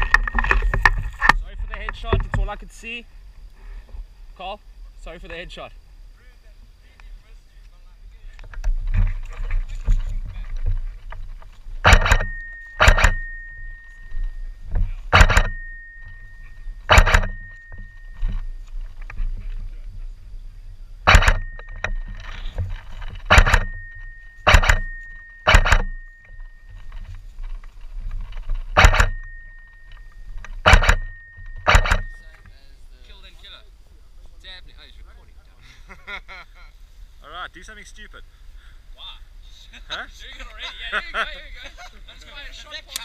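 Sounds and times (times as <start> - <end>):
low rumble of handling: 0.0 - 35.6
thin high ringing tone: 9.4 - 33.5
airsoft rifle shots: 11.8 - 13.5, 15.1 - 15.8, 16.8 - 17.8, 21.0 - 21.8, 23.2 - 26.1, 28.7 - 29.4, 30.6 - 32.2.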